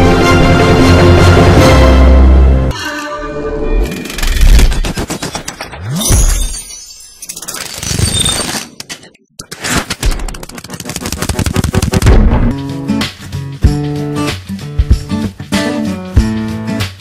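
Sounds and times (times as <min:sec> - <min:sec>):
rapid crackling clicks and hits: 0:04.0 - 0:05.8, 0:07.2 - 0:12.6.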